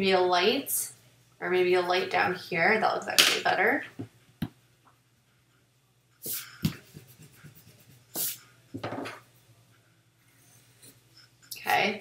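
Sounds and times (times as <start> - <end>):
eraser rubbing on paper: 6.2 - 8.5.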